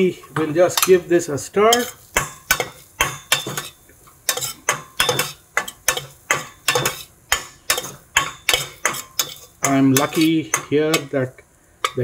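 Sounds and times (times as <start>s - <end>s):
metal spoon scraping a pot: 0.0s - 11.1s.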